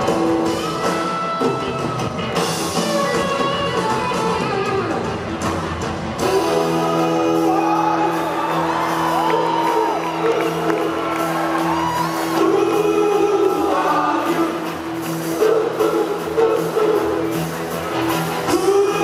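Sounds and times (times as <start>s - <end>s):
rock band holding a chord: 0.0s - 19.0s
man singing: 6.2s - 10.9s, 12.2s - 17.4s, 18.4s - 19.0s.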